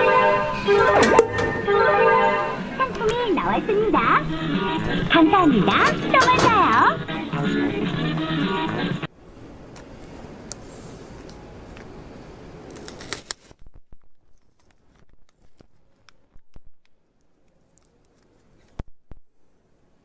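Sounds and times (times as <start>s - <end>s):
wrapper tearing and crinkling: 12.7s - 18.8s
small wrapper crackles and clicks: 12.7s - 18.9s.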